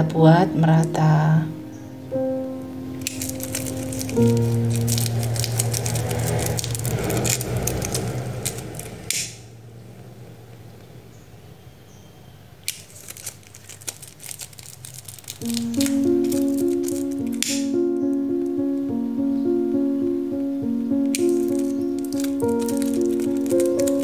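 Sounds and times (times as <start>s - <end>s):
fabric crinkling and crackling: 3.0s - 9.2s, 12.6s - 17.7s, 21.2s - 24.0s.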